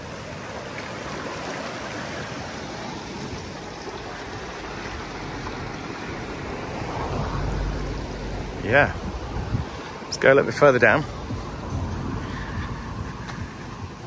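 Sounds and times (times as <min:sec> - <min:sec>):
river rushing: 0:00.0 - 0:14.0.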